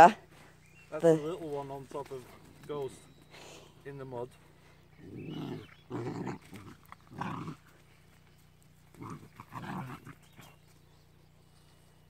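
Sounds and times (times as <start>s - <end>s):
puppies growling: 4.4s - 11.5s.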